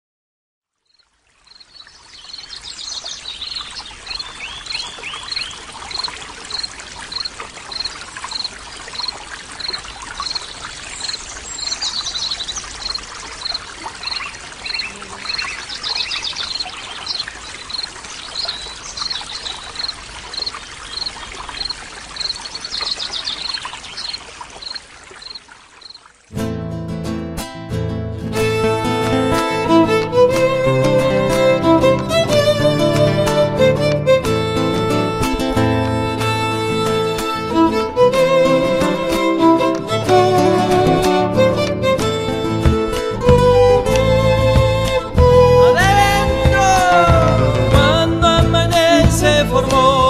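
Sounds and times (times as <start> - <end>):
running water: 0.7 - 26.4, 28.3 - 50.0
birds chirping and trilling: 0.8 - 26.1
music: 26.4 - 50.0.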